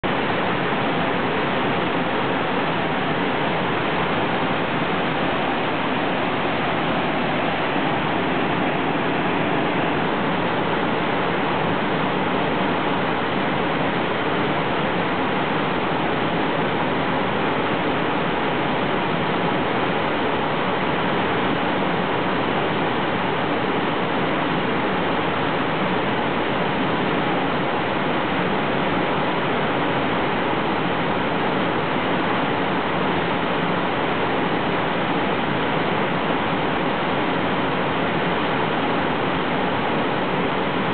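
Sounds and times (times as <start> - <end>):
whitewater roaring down cascades: 0.0 - 40.9.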